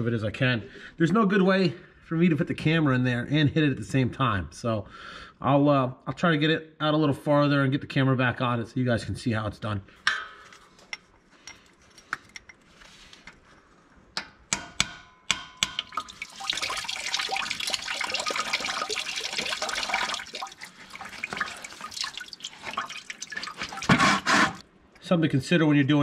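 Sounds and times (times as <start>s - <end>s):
coolant gushing and splashing: 15.8s - 24.6s.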